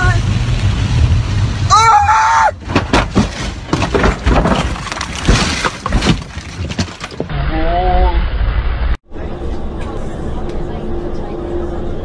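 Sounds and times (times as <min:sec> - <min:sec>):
person shouting: 0:01.7 - 0:02.6
car crash bangs and crunches: 0:02.6 - 0:07.3
glass breaking: 0:02.7 - 0:07.3.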